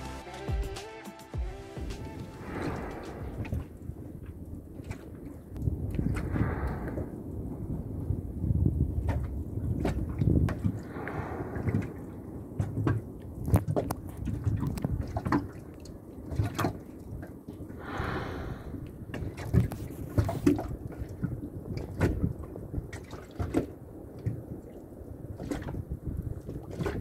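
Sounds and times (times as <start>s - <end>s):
rushing hiss of water: 2.0s - 3.7s, 17.8s - 18.8s
water lapping against boat hull: 2.6s - 17.8s, 18.7s - 27.0s.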